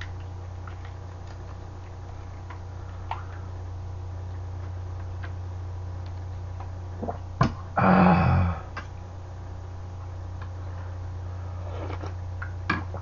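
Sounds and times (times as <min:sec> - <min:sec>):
low hum: 0:00.0 - 0:13.0
throaty vocal noise: 0:07.8 - 0:08.8.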